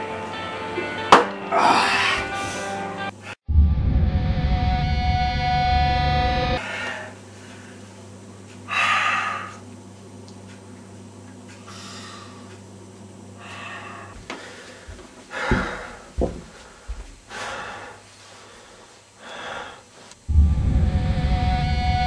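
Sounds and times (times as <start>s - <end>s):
person breathing heavily: 1.5s - 3.4s, 6.6s - 8.0s, 8.7s - 9.6s, 11.6s - 12.6s, 13.4s - 20.0s
dull knocks: 15.4s - 17.0s
loud music: 20.3s - 22.0s.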